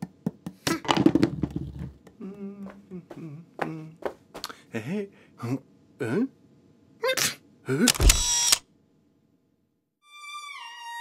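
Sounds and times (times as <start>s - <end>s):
fruit bowl clattering on floor: 0.8s - 2.0s
voice making ooh sounds: 1.7s - 4.0s.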